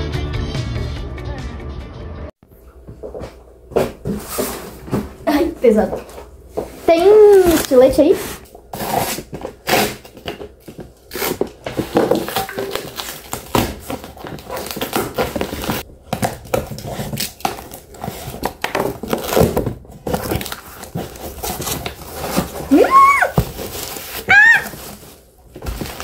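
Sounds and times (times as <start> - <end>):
cardboard tearing and crinkling: 7.0 - 26.0.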